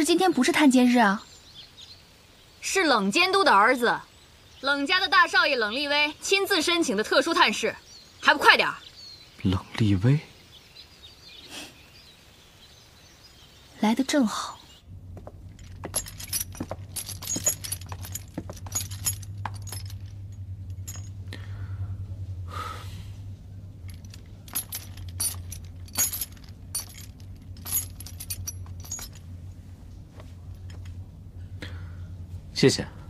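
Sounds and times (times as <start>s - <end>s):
low steady hum: 12.6s - 33.0s
metal clinking and jangling: 15.0s - 21.4s, 23.2s - 29.6s, 30.2s - 31.0s.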